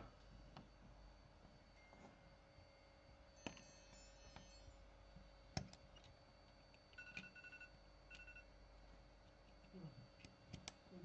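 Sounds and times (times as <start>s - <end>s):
steady low hum: 0.0s - 11.0s
faint electronic beeps: 1.6s - 5.2s, 6.9s - 8.5s.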